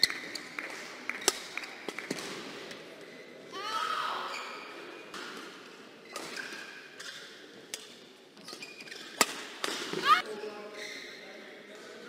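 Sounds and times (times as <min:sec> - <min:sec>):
racket hitting shuttlecock: 0:09.2 - 0:10.2.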